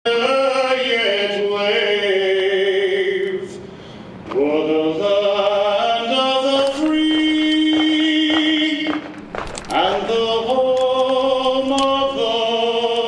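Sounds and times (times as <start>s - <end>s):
chanted singing: 4.6s - 13.0s.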